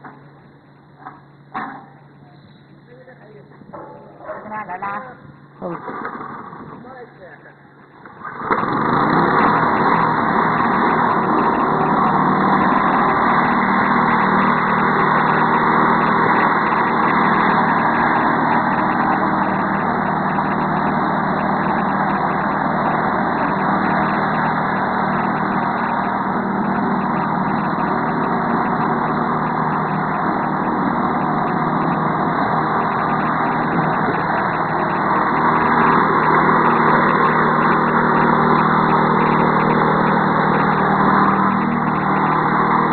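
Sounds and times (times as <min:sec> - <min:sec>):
small engine running: 0:00.0 - 0:01.2, 0:02.0 - 0:42.9
rotating brush sweeping dirt: 0:08.8 - 0:42.9.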